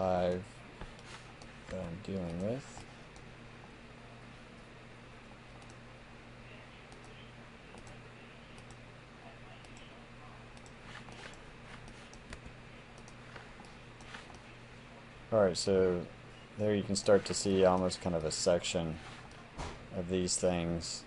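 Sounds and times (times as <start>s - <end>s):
low hum and hiss: 0.0s - 21.0s
computer mouse clicks: 0.2s - 3.3s, 5.6s - 5.8s, 6.9s - 8.0s, 10.6s - 14.5s.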